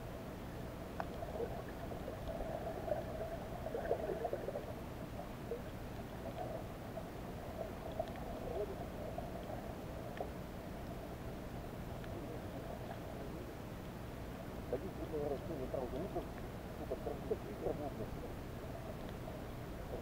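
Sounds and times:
underwater hum: 0:00.0 - 0:20.0
faint clicks: 0:00.9 - 0:02.4, 0:07.8 - 0:08.4, 0:09.3 - 0:11.0, 0:11.9 - 0:13.1, 0:15.2 - 0:16.5, 0:18.9 - 0:19.3.

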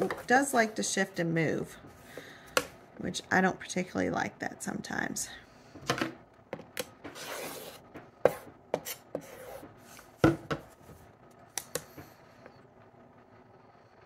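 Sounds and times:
ruler rasping slide: 0:07.1 - 0:10.1.

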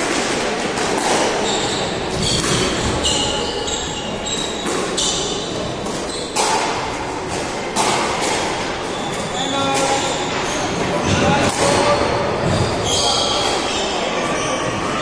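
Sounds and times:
squash ball hits echoing: 0:00.0 - 0:14.0
shoes squeaking on wooden floor: 0:01.4 - 0:06.4, 0:08.9 - 0:11.3, 0:12.3 - 0:14.7.

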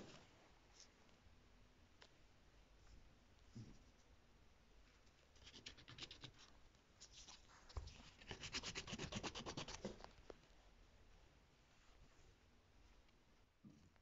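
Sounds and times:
pencil scribbling on paper: 0:08.1 - 0:10.0.

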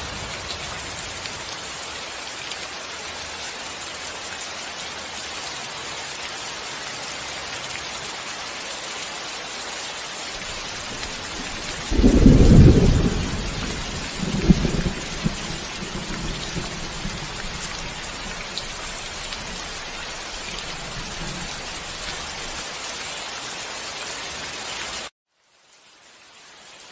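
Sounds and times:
steady rain hiss: 0:00.0 - 0:26.9
loud thunderclap: 0:10.4 - 0:18.9
thunder rumbling: 0:10.4 - 0:22.6.

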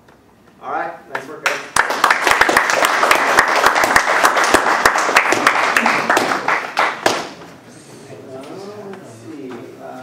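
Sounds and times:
audience applauding: 0:01.4 - 0:07.2.

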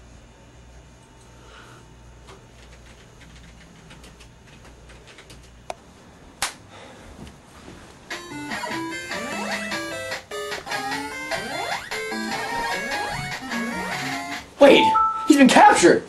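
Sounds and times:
loud bleepy music: 0:08.1 - 0:15.4.

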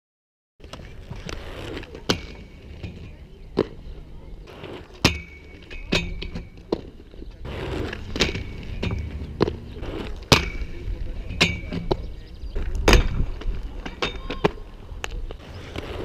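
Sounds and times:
skates grinding on metal rails: 0:00.6 - 0:16.0
wheels rolling on concrete: 0:00.6 - 0:16.0
hard knocks on rail and concrete: 0:05.0 - 0:06.9, 0:07.9 - 0:14.6.

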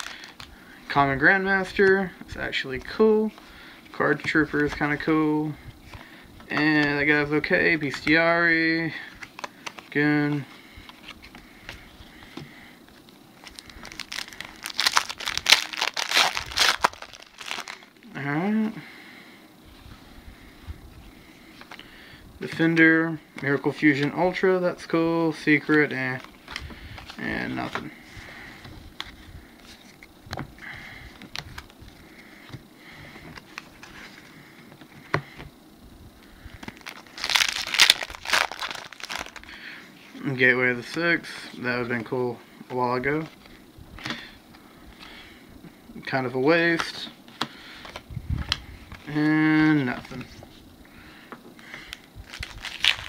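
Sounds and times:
foil wrapper crinkling: 0:00.0 - 0:00.5, 0:13.4 - 0:18.0, 0:36.6 - 0:39.6, 0:52.2 - 0:53.0.

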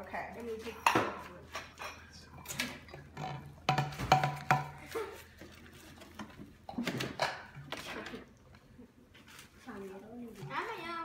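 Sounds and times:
bottles knocking on stone countertop: 0:03.2 - 0:04.8.

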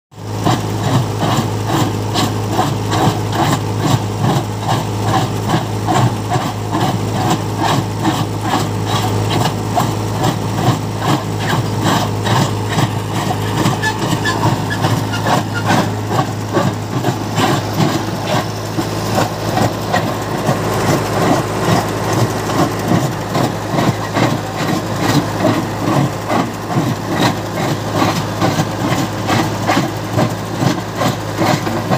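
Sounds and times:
tractor engine running: 0:00.2 - 0:31.9
stone crusher clattering: 0:00.4 - 0:31.9.

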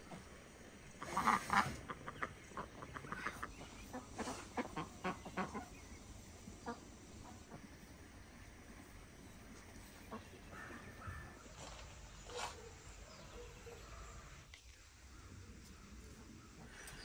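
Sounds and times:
ducks quacking: 0:01.0 - 0:07.7.

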